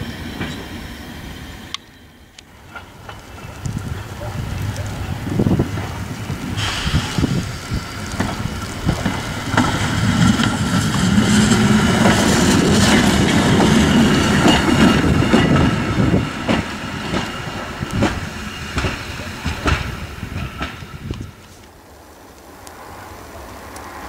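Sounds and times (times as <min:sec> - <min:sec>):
diesel railcar engine drone: 0:00.0 - 0:24.0.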